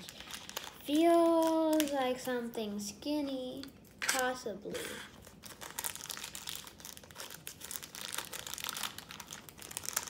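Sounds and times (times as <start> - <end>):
wrapper crinkling: 0.0 - 2.3, 5.1 - 10.0.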